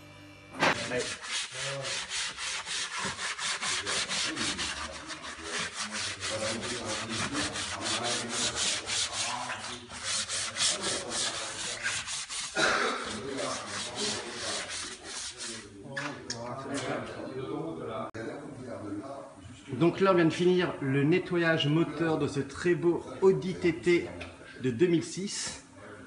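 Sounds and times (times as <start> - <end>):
brush scrubbing plastic: 0.8 - 15.6.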